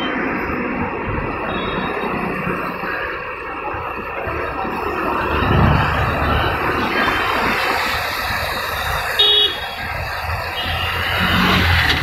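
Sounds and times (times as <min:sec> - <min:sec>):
road traffic on wet street: 0:00.0 - 0:12.0
vehicle passing close: 0:04.6 - 0:09.1.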